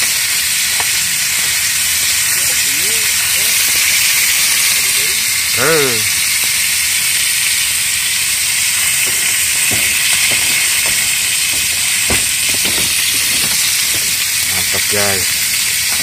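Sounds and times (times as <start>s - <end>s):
fish sizzling in oil: 0.0s - 16.0s
spoon knocking and scraping pan: 9.0s - 14.2s.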